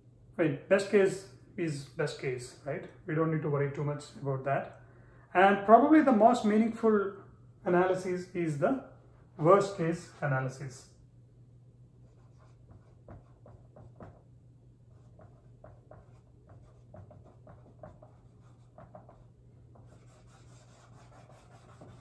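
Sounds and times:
marker writing on whiteboard: 12.0s - 14.3s, 14.9s - 22.0s.

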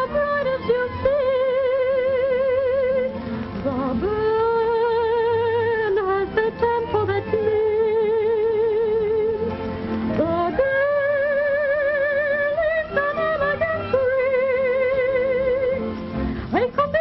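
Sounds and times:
musical accompaniment: 0.0s - 17.0s
woman singing with vibrato: 0.0s - 17.0s.

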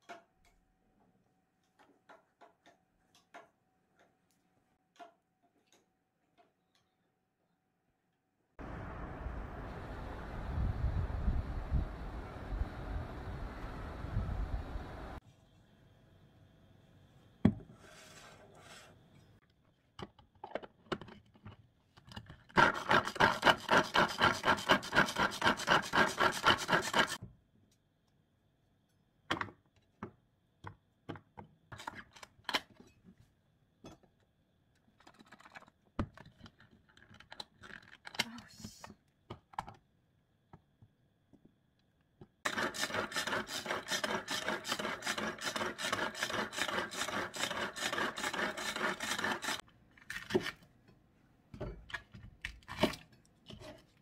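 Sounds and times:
hand food chopper chopping: 22.6s - 27.2s, 42.5s - 49.6s
knife cutting on plastic board: 42.5s - 49.6s.

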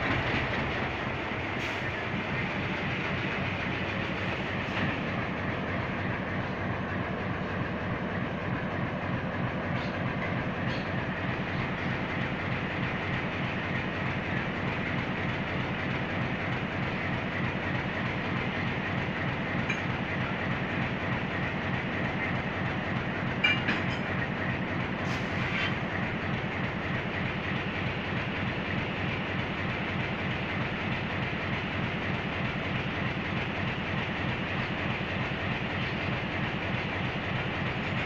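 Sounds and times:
locomotive engine idling: 0.0s - 38.0s
metallic clanks: 23.4s - 24.2s.

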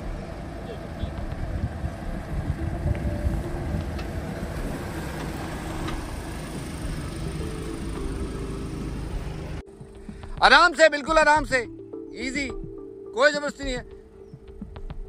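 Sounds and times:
vehicle engine at low revs: 0.0s - 9.6s.

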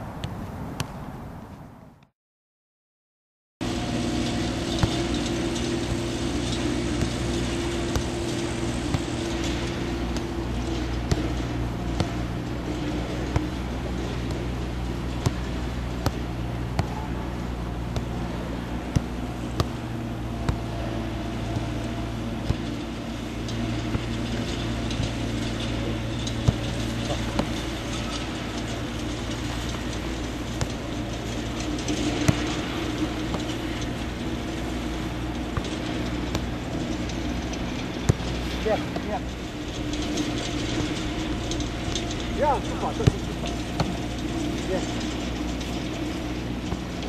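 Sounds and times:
low mechanical hum: 3.6s - 47.0s.

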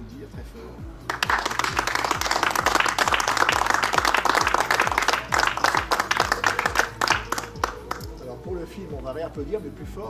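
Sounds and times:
background music with steady beat: 0.0s - 10.0s
small group applauding: 1.1s - 8.2s.

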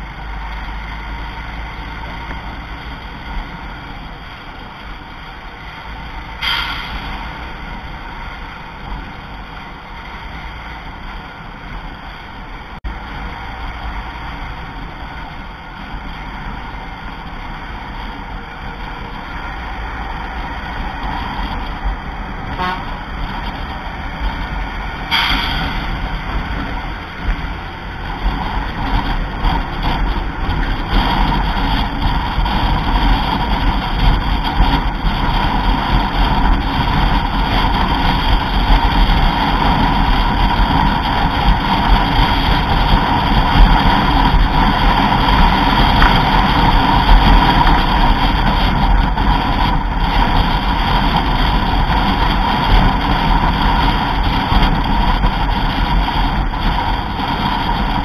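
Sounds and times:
vehicle engine and road noise: 0.0s - 58.0s
short horn toots: 6.4s - 7.3s, 22.5s - 23.0s, 25.1s - 25.8s.

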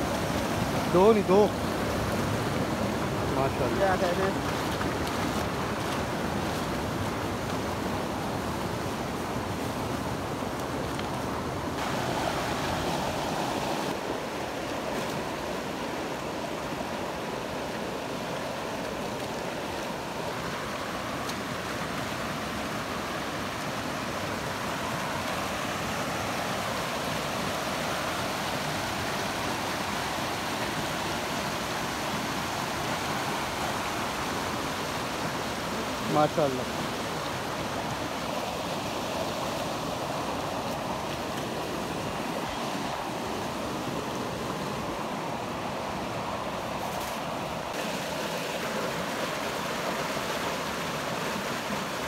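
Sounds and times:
stream water rushing: 0.0s - 52.0s.

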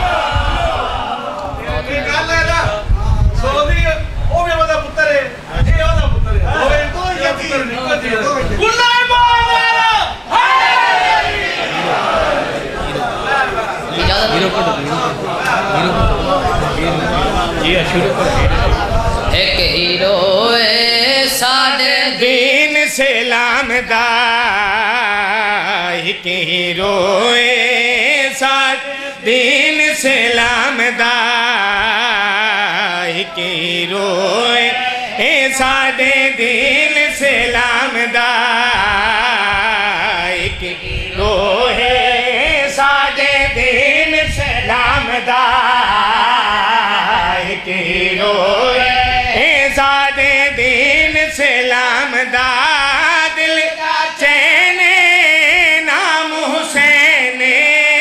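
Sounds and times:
man's voice singing: 0.0s - 58.0s
boy chanting into microphone: 15.7s - 58.0s.

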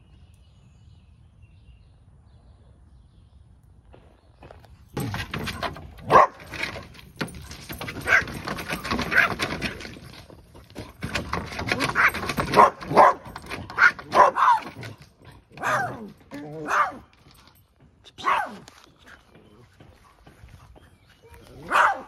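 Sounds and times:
dogs barking: 6.0s - 6.9s, 7.7s - 9.8s, 11.6s - 17.1s, 18.2s - 18.7s, 21.4s - 22.0s.

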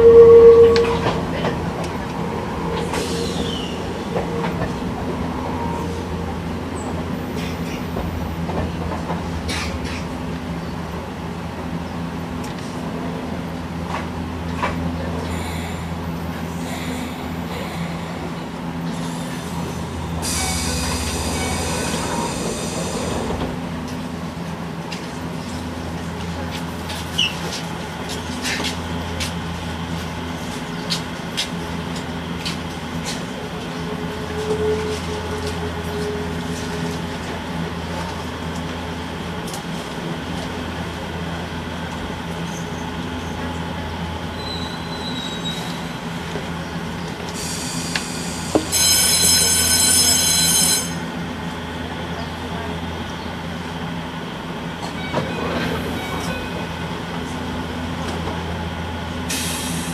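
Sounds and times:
high ringing tone: 0.0s - 1.1s, 48.7s - 51.0s
railcar equipment humming: 0.0s - 59.9s.

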